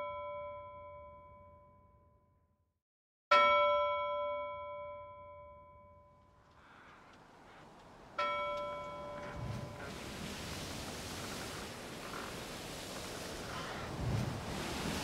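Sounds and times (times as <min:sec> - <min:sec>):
soft hiss: 0:08.8 - 0:15.0.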